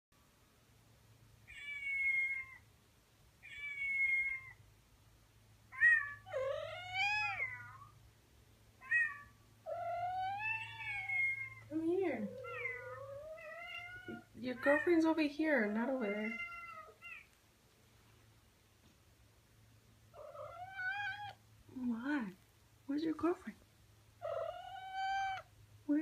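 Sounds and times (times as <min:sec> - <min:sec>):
cat meowing low: 0:05.8 - 0:07.9, 0:20.2 - 0:21.4, 0:24.2 - 0:25.5.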